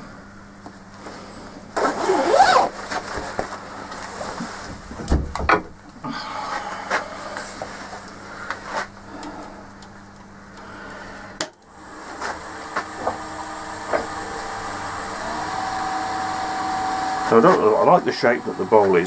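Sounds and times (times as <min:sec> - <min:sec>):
lathe motor whining: 0:11.6 - 0:19.0.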